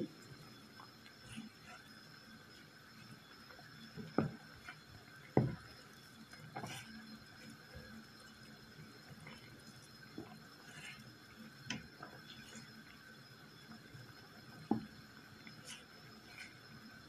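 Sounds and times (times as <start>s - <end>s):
faint steady hum: 0.0s - 17.0s
wooden spatula knocking a pot: 5.4s - 5.6s.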